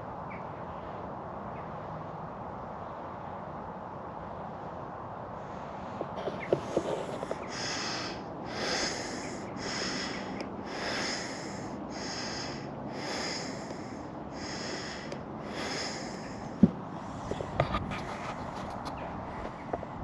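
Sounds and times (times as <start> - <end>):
heavy rhythmic breathing: 6.0 - 18.5.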